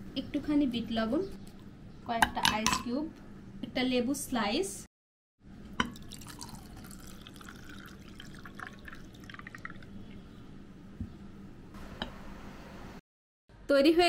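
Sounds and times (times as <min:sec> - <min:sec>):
juice pouring into a glass: 0:05.9 - 0:10.3.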